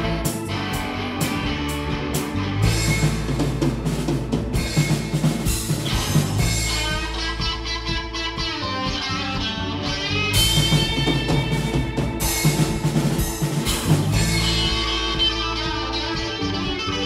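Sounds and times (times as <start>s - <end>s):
blues band playing live: 0.0s - 17.0s
electric guitar: 0.0s - 17.0s.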